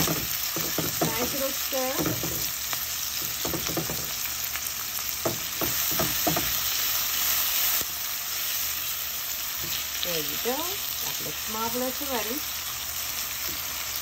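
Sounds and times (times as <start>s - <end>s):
spatula scraping and knocking pan: 0.0s - 4.3s, 5.2s - 6.8s
vegetables sizzling in oil: 0.0s - 14.0s.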